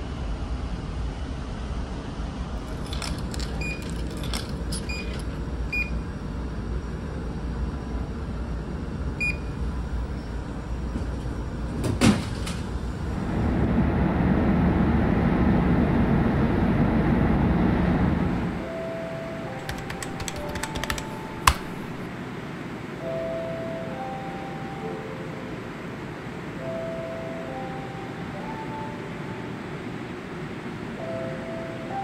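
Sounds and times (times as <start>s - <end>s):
keypad electronic beeps: 2.9s - 6.0s, 19.6s - 22.1s.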